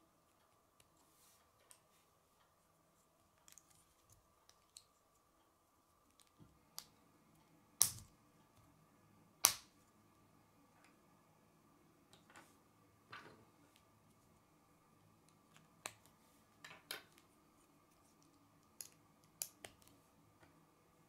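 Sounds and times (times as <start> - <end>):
plastic pieces snapping: 7.8 - 8.1.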